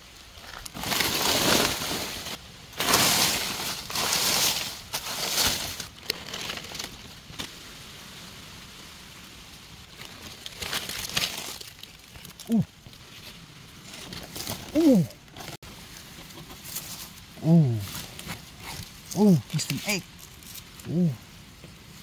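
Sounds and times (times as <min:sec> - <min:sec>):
dry leaves crackling rustle: 0:00.0 - 0:22.0.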